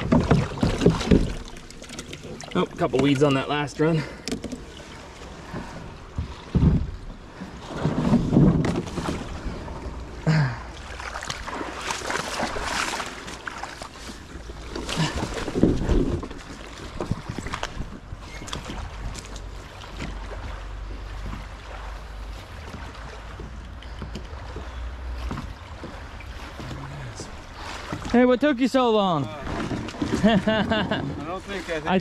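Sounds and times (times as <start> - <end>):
hollow knocks on plastic hull: 0.0 - 1.5
water sloshing around hull: 0.0 - 32.0.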